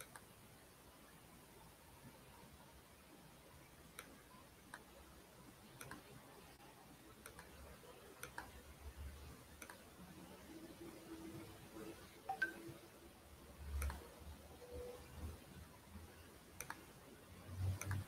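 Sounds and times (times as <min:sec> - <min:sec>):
faint irregular clicks: 0:00.0 - 0:00.3, 0:03.8 - 0:05.0, 0:05.7 - 0:06.2, 0:07.1 - 0:08.6, 0:09.6 - 0:09.9, 0:13.6 - 0:14.1, 0:16.6 - 0:17.0, 0:17.6 - 0:18.0.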